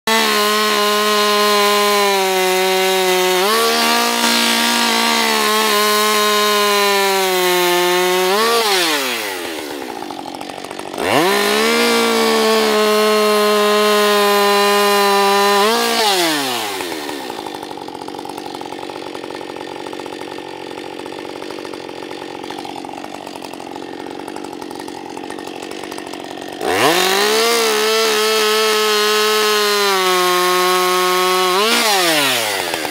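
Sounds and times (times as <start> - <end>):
chainsaw cutting log: 0.0 - 32.9
chainsaw idling: 0.1 - 32.9.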